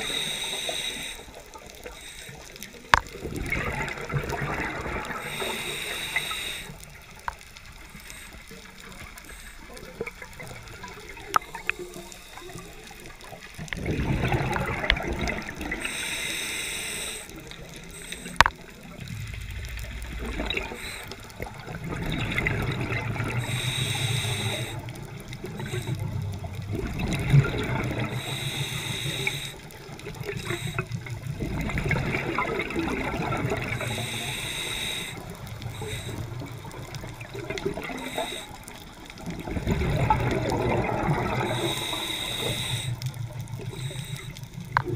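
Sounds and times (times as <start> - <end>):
regulator inhalation hiss: 0.0 - 2.9, 5.2 - 6.9, 7.8 - 9.7, 15.8 - 18.8, 20.6 - 21.5, 23.3 - 25.0, 25.6 - 26.1, 28.1 - 31.0, 33.7 - 36.5, 37.9 - 38.8, 41.4 - 44.6
bubbling exhalations underwater: 3.0 - 5.5, 13.7 - 15.9, 18.4 - 23.5, 24.8 - 28.2, 29.7 - 34.0, 35.2 - 43.9.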